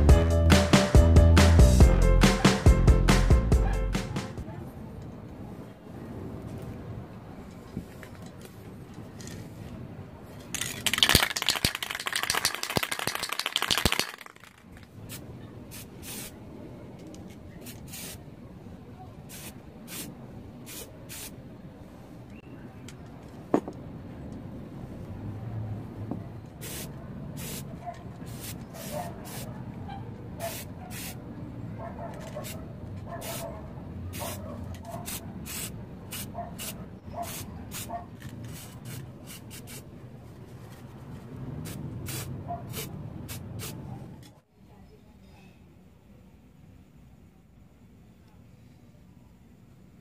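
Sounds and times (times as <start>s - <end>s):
aerosol spray can spraying: 10.6s - 14.5s, 15.7s - 16.3s, 17.6s - 18.2s, 19.3s - 20.1s, 35.0s - 39.8s, 41.7s - 43.8s.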